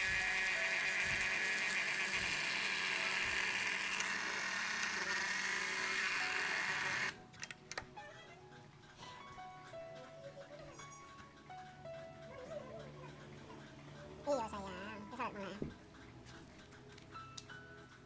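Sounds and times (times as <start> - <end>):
rotary tool grinding: 0.0 - 7.2.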